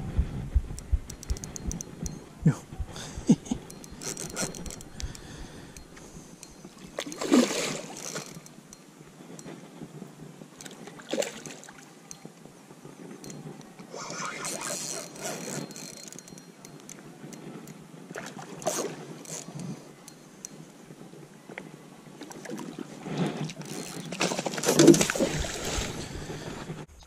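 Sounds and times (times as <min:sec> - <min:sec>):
water splashing against boat: 0:03.6 - 0:08.5, 0:10.6 - 0:12.2, 0:18.1 - 0:19.8, 0:21.5 - 0:26.9.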